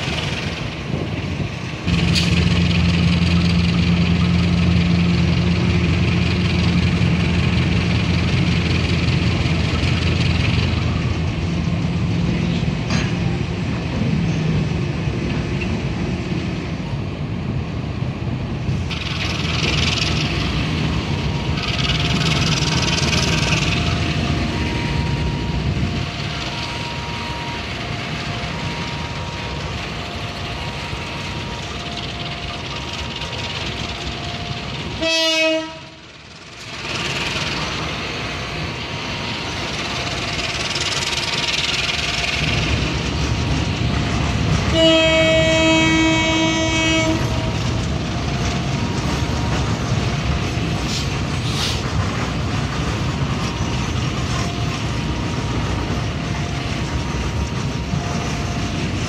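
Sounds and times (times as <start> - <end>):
locomotive engine drone: 0.0 - 59.0
wagons rolling on rails: 18.7 - 35.0, 36.0 - 59.0
two-tone crossing signal beeping: 19.2 - 35.3, 37.0 - 51.2, 52.5 - 59.0
short bursts of hiss: 50.9 - 51.8.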